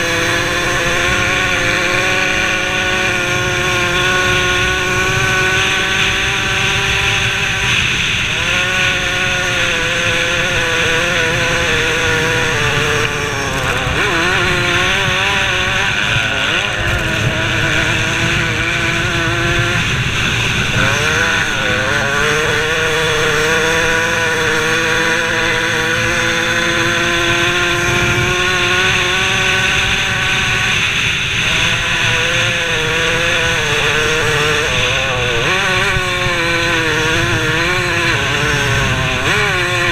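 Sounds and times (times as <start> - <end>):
motocross bike engine at high revs: 0.0 - 39.9.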